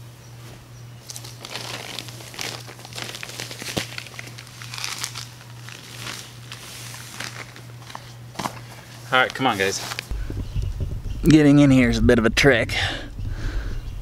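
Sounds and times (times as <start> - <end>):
plastic bag crinkling: 1.0 - 10.1.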